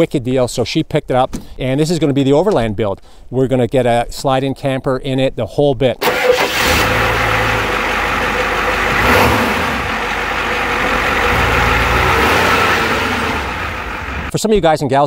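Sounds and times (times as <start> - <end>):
diesel engine idling: 6.0 - 14.3.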